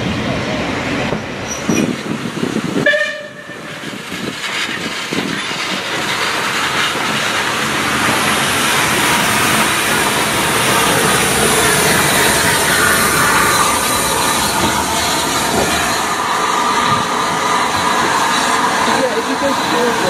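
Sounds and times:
steam locomotive hissing: 1.3s - 20.0s
steam whistle toot: 2.8s - 3.7s.

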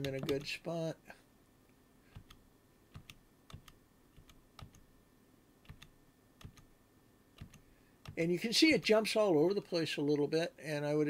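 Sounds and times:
computer controls clicking: 0.0s - 0.5s, 2.1s - 4.9s, 5.6s - 6.7s, 7.4s - 8.2s.

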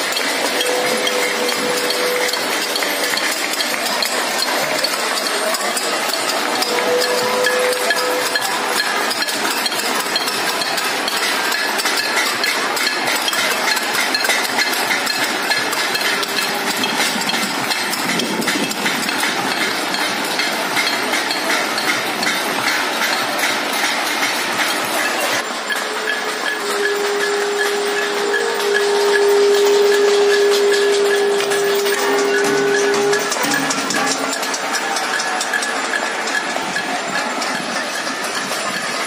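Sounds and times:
held tone: 0.0s - 10.8s, 24.5s - 39.0s
crowd clapping: 0.0s - 39.0s
utensils banging on steel plates: 0.0s - 39.0s.

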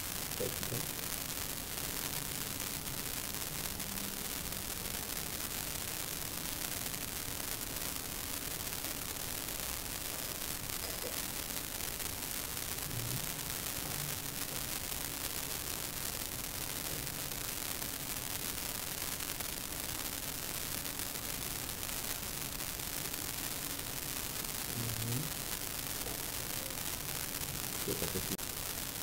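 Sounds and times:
faint low sounds: 0.0s - 6.1s, 10.0s - 15.0s, 24.3s - 28.4s
faint hum: 0.0s - 17.3s, 23.0s - 29.0s
background hiss: 0.0s - 29.0s.

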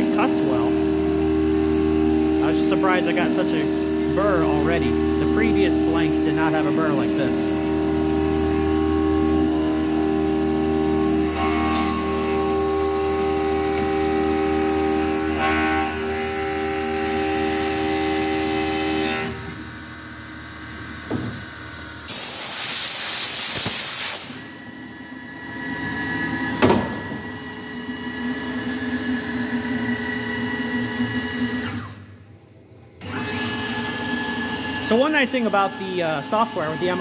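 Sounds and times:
mill spindle whine: 0.0s - 22.1s, 24.3s - 37.0s
steady machine hum: 0.0s - 22.1s
compressed air hiss: 22.1s - 24.4s.

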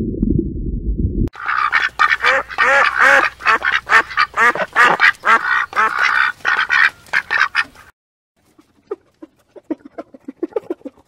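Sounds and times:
goose honking: 1.4s - 7.9s.

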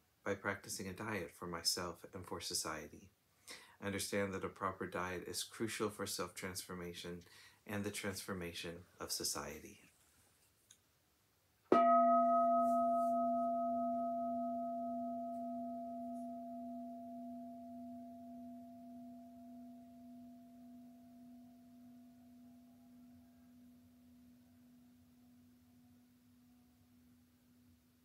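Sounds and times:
bowl bell ringing: 11.7s - 24.8s.

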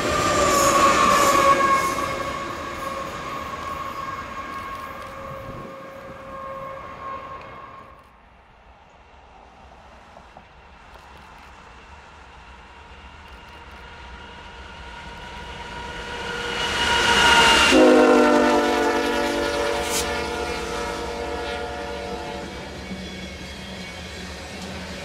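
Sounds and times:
locomotive air horn: 0.0s - 8.1s, 17.0s - 22.8s
passing train rumble: 0.0s - 25.0s.

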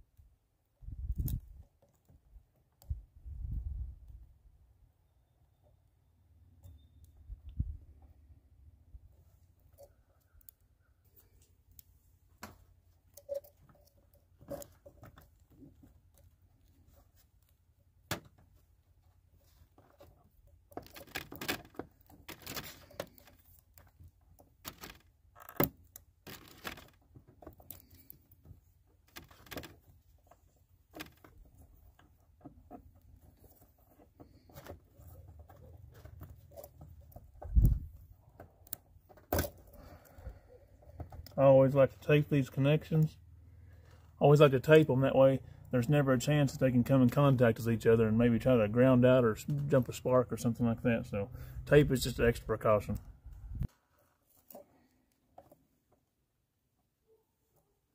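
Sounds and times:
wires twisting rustle: 9.2s - 44.4s.

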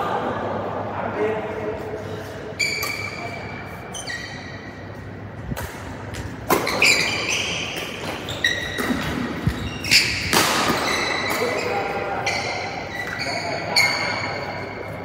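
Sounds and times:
shoes squeaking on court: 2.6s - 15.0s
racket hitting shuttlecock: 5.5s - 11.7s.

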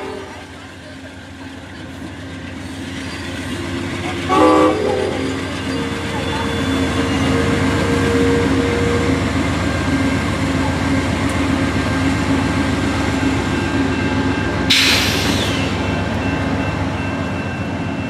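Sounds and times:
brief hiss: 14.7s - 15.8s.

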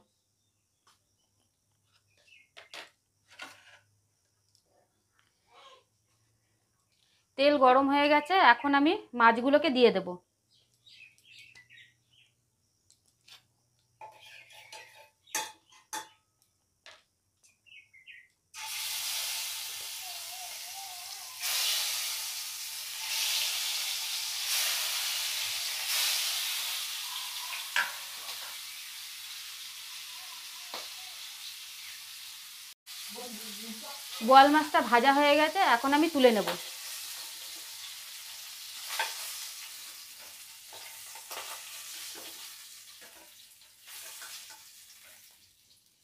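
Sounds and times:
fish frying in hot oil: 18.6s - 46.0s.

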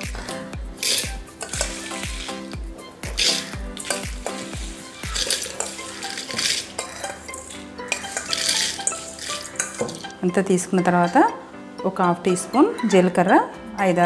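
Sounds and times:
background music with deep beat: 0.0s - 10.2s
spoon scraping lentils in metal pan: 0.8s - 10.2s.

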